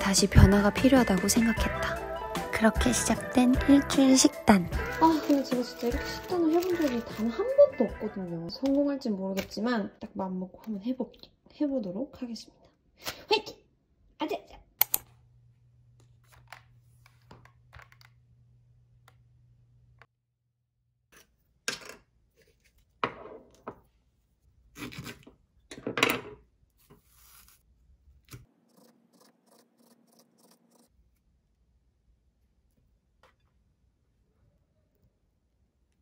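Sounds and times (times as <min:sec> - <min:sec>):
foil seal scraping and crackling: 0:05.0 - 0:07.3.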